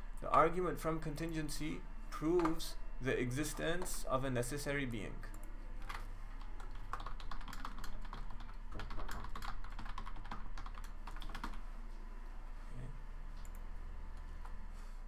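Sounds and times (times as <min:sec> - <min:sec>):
typing on a computer keyboard: 0:06.6 - 0:11.6.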